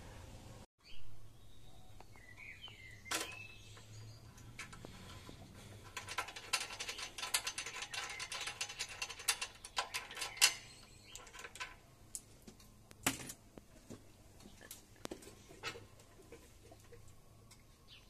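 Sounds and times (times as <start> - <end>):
mechanical clicking and rattling: 4.4 - 11.8.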